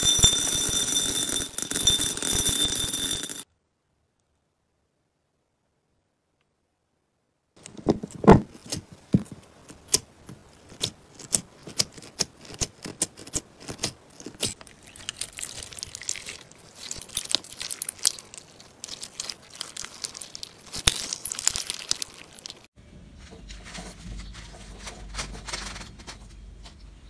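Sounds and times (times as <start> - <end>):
slime crackling: 9.5 - 22.7.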